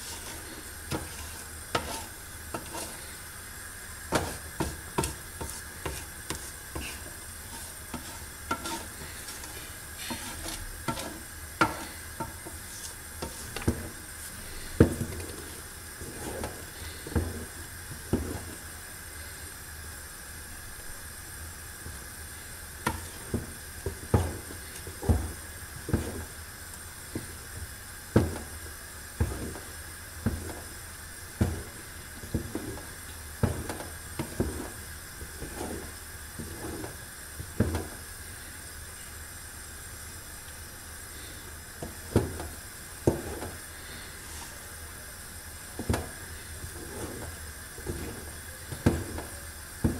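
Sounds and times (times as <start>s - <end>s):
wooden spoon scraping a pot: 0.0s - 3.4s, 4.1s - 18.8s, 21.9s - 38.0s, 41.2s - 44.7s, 45.8s - 49.9s.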